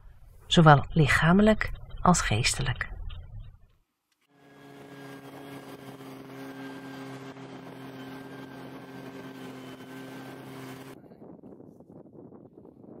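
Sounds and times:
steady snowmobile engine: 4.3 - 11.3
snowmobile engine running: 4.4 - 11.0.

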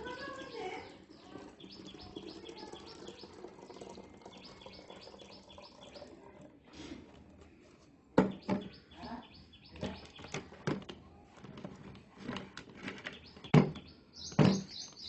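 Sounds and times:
bird chirping: 0.0 - 6.2, 8.2 - 10.6, 12.9 - 15.0
liquid trickling into bottle: 0.0 - 7.2.

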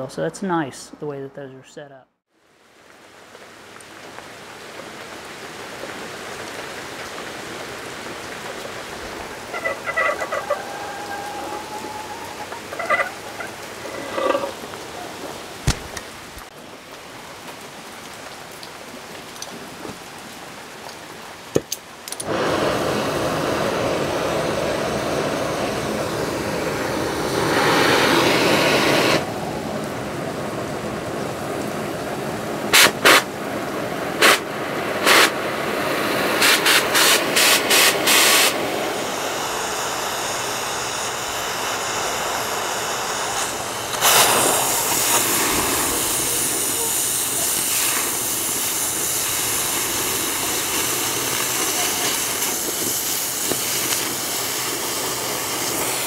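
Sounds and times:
cutting torch flame hissing: 7.7 - 16.5, 22.2 - 29.9, 34.2 - 34.4, 35.0 - 35.4, 36.0 - 56.0
torch flame popping: 15.6 - 16.5, 41.1 - 56.0.

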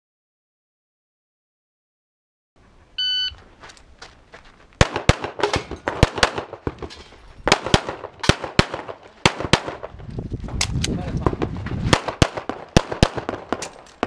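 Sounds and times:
shot timer beep: 3.0 - 3.4
pistol shots: 4.8 - 9.9, 11.9 - 14.0.

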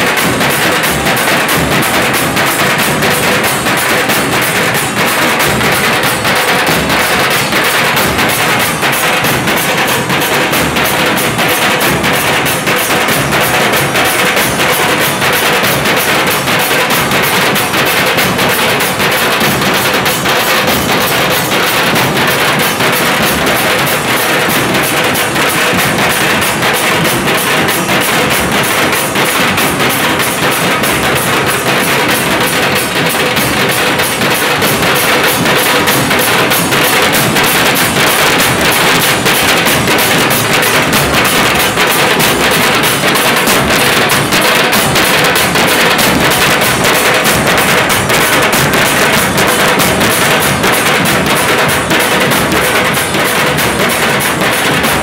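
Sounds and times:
large drums beaten hard: 0.0 - 55.0.

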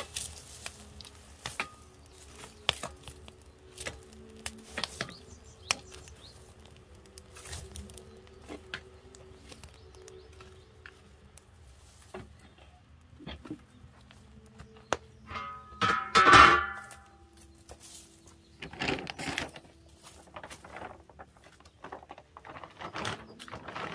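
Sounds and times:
wood fire crackling and popping: 0.0 - 23.9.

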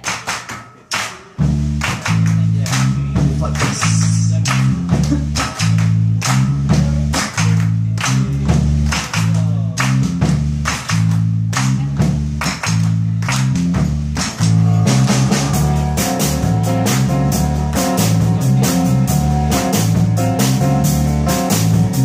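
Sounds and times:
drum kit steady beat: 0.0 - 22.0
electric bass line: 1.4 - 22.0
piano chords: 14.2 - 22.0.

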